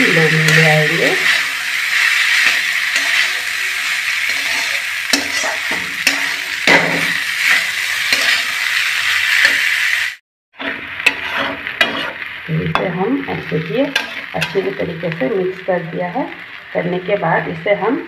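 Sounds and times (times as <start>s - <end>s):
frying sizzle: 0.0s - 18.0s
metal spatula scraping pan: 0.1s - 9.7s, 10.6s - 14.8s.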